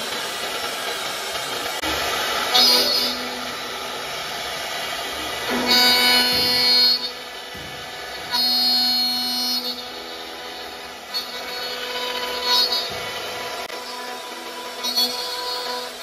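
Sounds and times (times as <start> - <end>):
machine spindle whining: 0.0 - 16.0
cutter biting into wood: 5.2 - 16.0.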